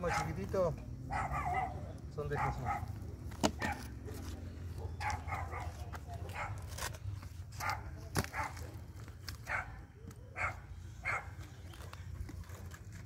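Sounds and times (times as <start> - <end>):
dog barking: 0.0 - 0.4, 1.1 - 3.0, 3.6 - 6.7, 7.6 - 8.6, 9.5 - 11.4.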